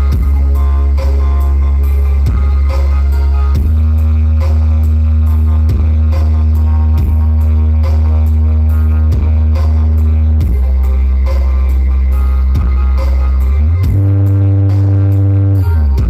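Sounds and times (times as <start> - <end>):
electronic dance music: 0.0 - 16.0.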